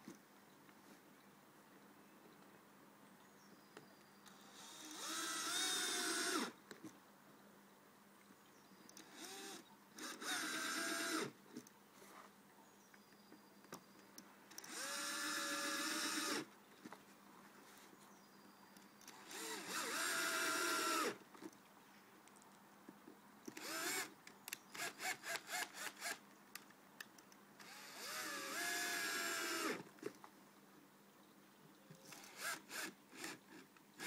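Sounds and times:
electric drill motor whine: 0:04.4 - 0:06.5, 0:09.0 - 0:11.3, 0:14.6 - 0:16.4, 0:19.3 - 0:21.2, 0:23.6 - 0:24.1, 0:27.6 - 0:29.8, 0:32.2 - 0:33.4.

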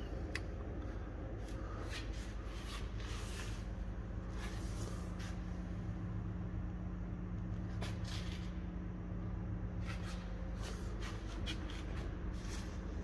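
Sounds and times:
steady low hum: 0:00.0 - 0:13.0
faint rustles and scuffs: 0:01.4 - 0:05.7, 0:09.8 - 0:13.0.

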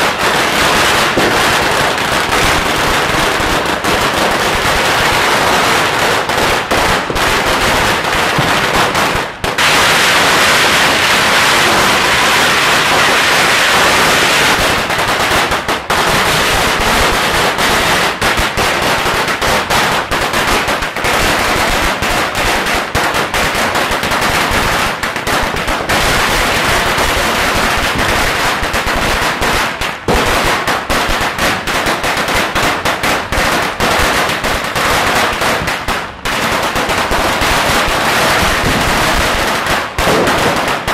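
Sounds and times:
firecracker strings banging rapidly: 0:39.9 - 0:40.9.

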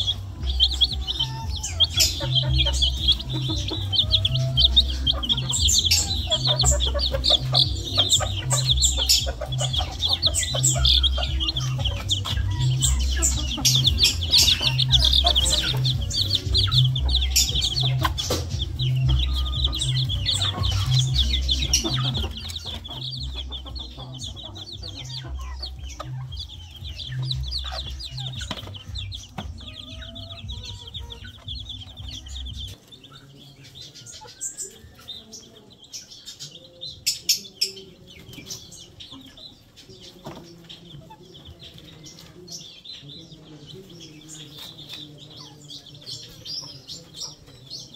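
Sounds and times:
music with heavy bass beat: 0:00.0 - 0:32.8
chicks peeping: 0:00.0 - 0:47.9
hens clucking: 0:00.0 - 0:47.9.

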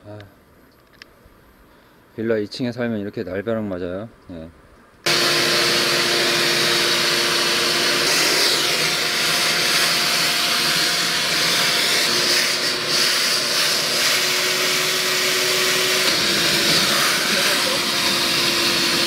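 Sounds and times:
vacuum motor hum: 0:05.1 - 0:19.0
vacuum sucking water: 0:05.1 - 0:19.0.

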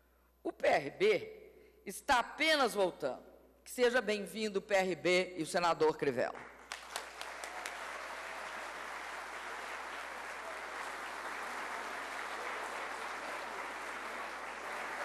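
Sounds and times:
audience applauding: 0:06.6 - 0:15.0.

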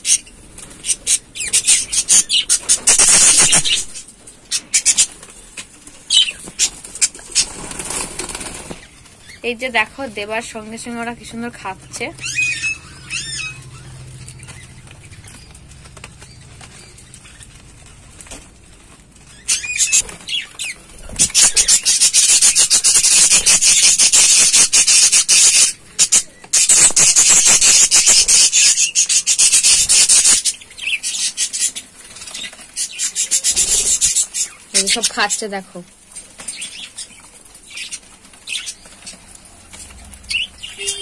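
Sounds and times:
budgerigars chattering: 0:00.0 - 0:05.2, 0:06.1 - 0:15.6, 0:19.3 - 0:35.7, 0:39.8 - 0:41.0.

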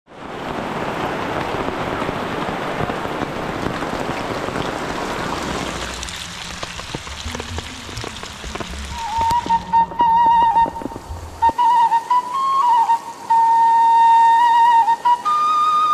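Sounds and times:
rain on a plastic tarp: 0:00.1 - 0:15.9
single raindrops: 0:00.3 - 0:11.7.

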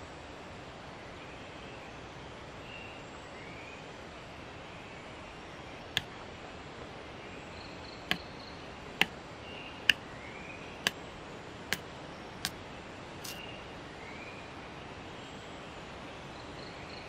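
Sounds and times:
machete chopping wooden stick: 0:13.2 - 0:13.4.

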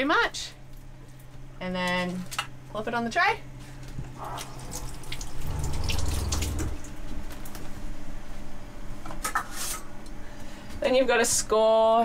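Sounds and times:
low hum: 0:03.9 - 0:07.3
tap water running into sink: 0:04.2 - 0:06.8.

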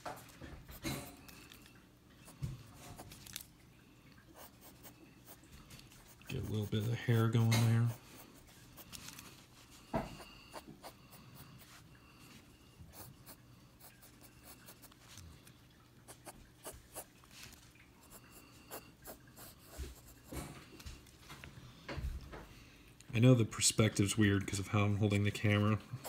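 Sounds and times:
pencil scratching on paper: 0:04.4 - 0:09.0, 0:10.2 - 0:11.0, 0:18.0 - 0:20.5.

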